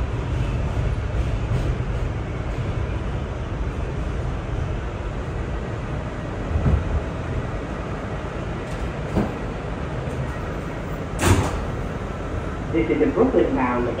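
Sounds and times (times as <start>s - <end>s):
subway car rumbling on track: 0.0s - 14.0s
train doors opening: 6.1s - 14.0s.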